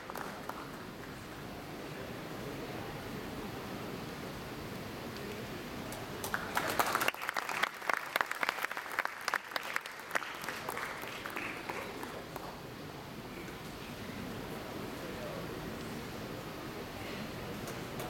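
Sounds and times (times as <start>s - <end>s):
crowd clapping: 0.0s - 1.2s, 6.2s - 12.7s.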